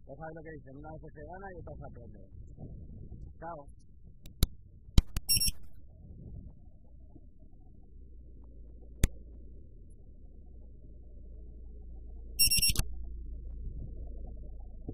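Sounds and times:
low rumble of wind and handling: 0:00.0 - 0:14.9
sharp click: 0:04.2 - 0:05.7, 0:09.0 - 0:09.2, 0:12.4 - 0:13.0
high electronic beeps: 0:05.1 - 0:05.8, 0:12.4 - 0:13.0.

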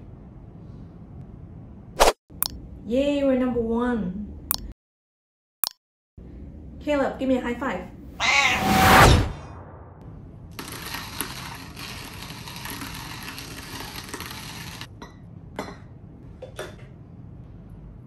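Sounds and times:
coffee grinder crunching beans: 0:10.5 - 0:14.9.

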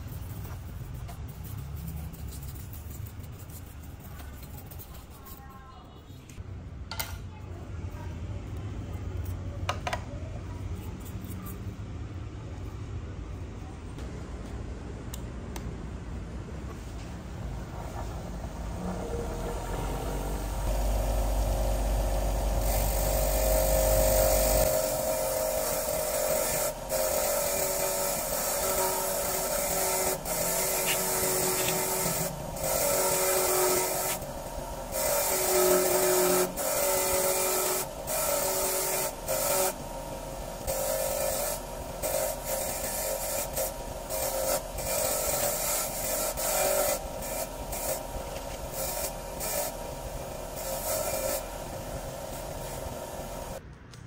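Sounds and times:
abrasive rubbing and scraping: 0:00.0 - 0:05.8, 0:22.6 - 0:39.8.

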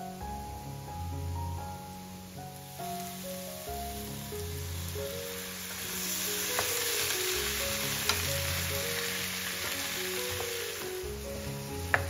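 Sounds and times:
soft background music: 0:00.0 - 0:12.0
vegetables sizzling in a frying pan: 0:00.2 - 0:12.0
wooden spoon clicking on pan: 0:06.6 - 0:07.1, 0:08.0 - 0:08.3, 0:11.8 - 0:12.0.

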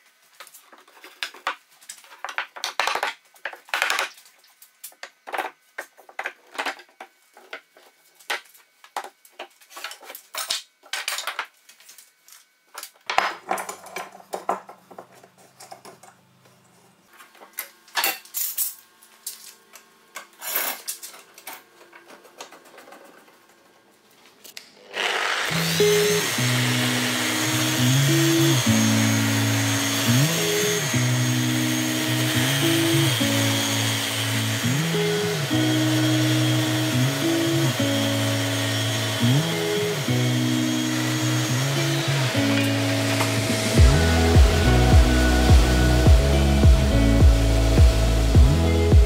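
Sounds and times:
wood and tools clattering on workbench: 0:12.8 - 0:16.2.

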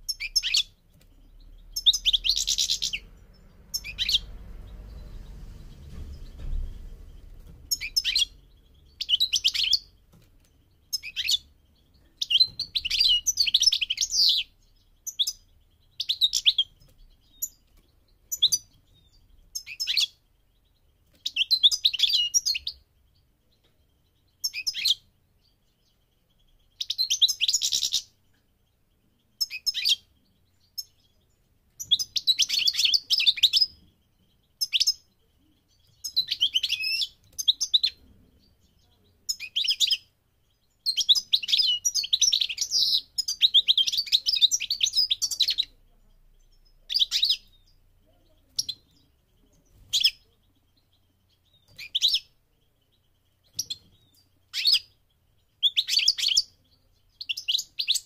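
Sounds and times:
goldfinch twittering song: 0:00.0 - 0:58.0.

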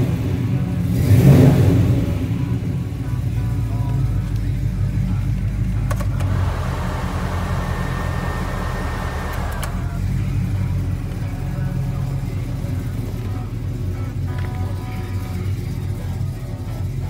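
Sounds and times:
engine idling: 0:00.0 - 0:17.0
air conditioning blower whirring: 0:05.7 - 0:15.4
switch clicking: 0:05.8 - 0:06.4, 0:09.2 - 0:09.9.

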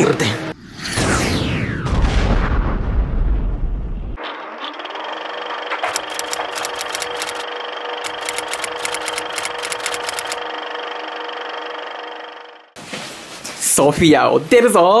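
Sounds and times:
film projector whirring: 0:05.2 - 0:12.5
crackling clicks: 0:05.8 - 0:07.4, 0:08.0 - 0:10.4.

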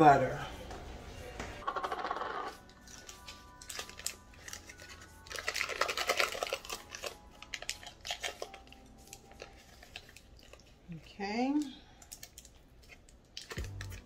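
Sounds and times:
paper wrapper crinkling and tearing: 0:02.1 - 0:10.9, 0:12.0 - 0:14.0.

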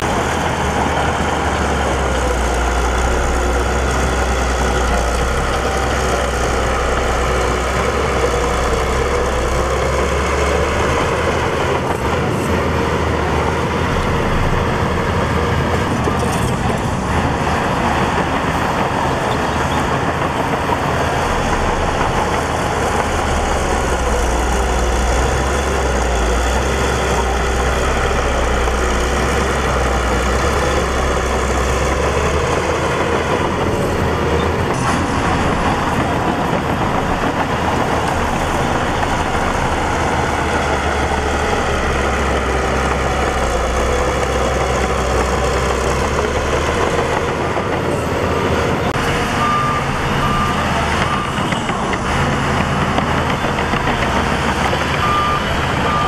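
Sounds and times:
bulldozer diesel engine under load: 0:00.0 - 0:56.0
reversing alarm beeping: 0:49.2 - 0:52.4, 0:53.3 - 0:56.0.

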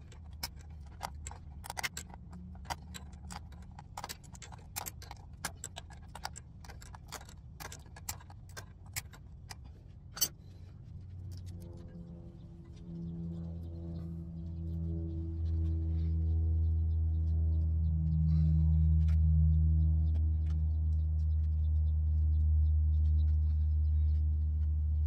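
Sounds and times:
light metallic clicks of tools: 0:00.0 - 0:11.8
low steady hum: 0:00.0 - 0:25.0.

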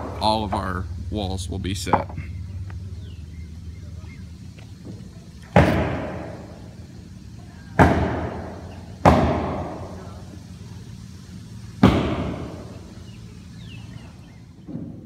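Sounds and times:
hammer bangs on wood framing: 0:05.5 - 0:06.4, 0:07.8 - 0:09.9, 0:11.8 - 0:12.7.

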